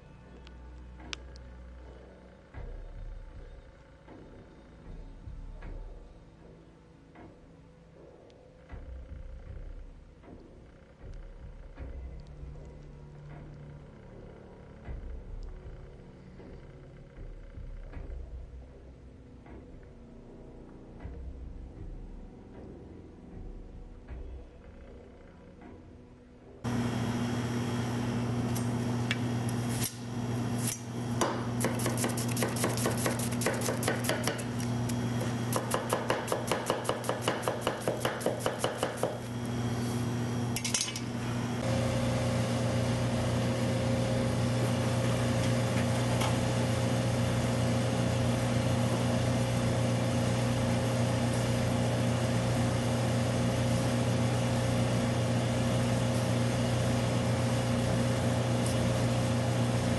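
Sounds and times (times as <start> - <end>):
steady low hum: 0.0 - 59.9
knife chopping on wooden board: 31.2 - 34.5, 35.5 - 39.2.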